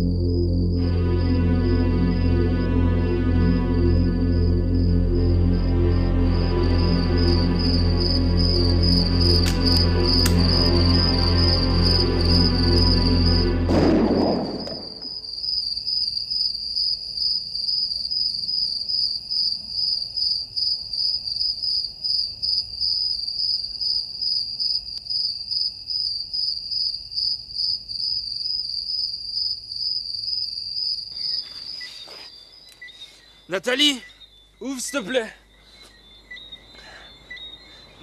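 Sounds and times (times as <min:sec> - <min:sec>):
music: 0:00.0 - 0:15.2
crickets chirping: 0:00.0 - 0:38.0.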